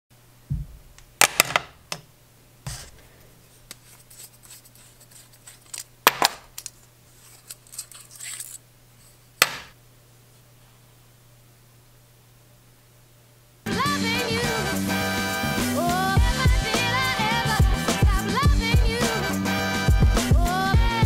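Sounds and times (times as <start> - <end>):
light scratchy handling: 2.7 - 5.9, 6.5 - 9.2
metal pen clicks and rattles: 6.5 - 8.6.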